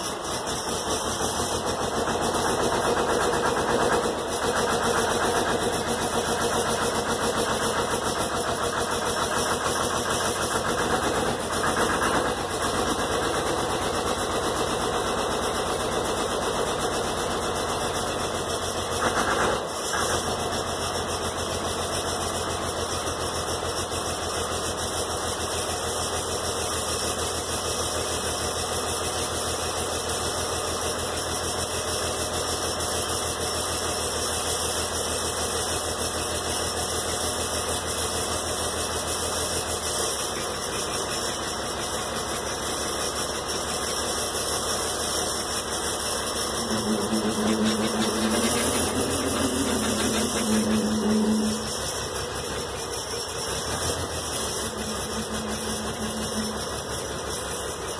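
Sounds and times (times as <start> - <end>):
diesel engine running: 0.0 - 57.9
rising and falling whine: 46.6 - 52.5, 53.7 - 57.0.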